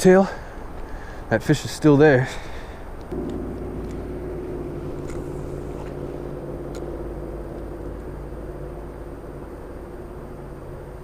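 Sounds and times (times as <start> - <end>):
vehicle engine droning: 2.8 - 11.0.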